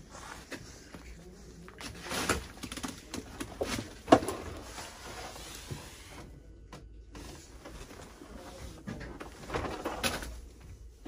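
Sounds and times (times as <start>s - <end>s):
knocks and clicks in closet: 1.8s - 4.8s, 5.6s - 11.0s.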